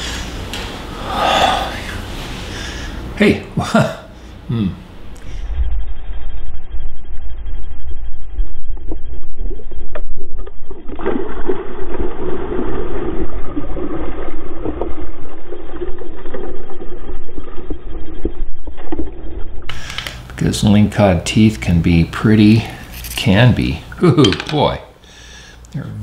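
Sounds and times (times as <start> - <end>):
steady low rumble: 0.0 - 23.1
water splashing and sloshing: 9.4 - 19.7.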